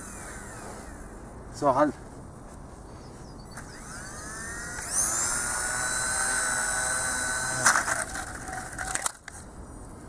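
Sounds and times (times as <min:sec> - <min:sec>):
rc helicopter rotor whine: 0:00.0 - 0:01.2, 0:03.6 - 0:09.0
rotor blades striking ground: 0:03.5 - 0:09.2.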